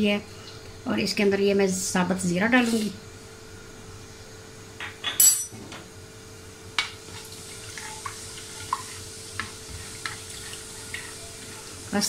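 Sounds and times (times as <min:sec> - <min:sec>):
seeds frying in hot oil: 0:06.6 - 0:12.0.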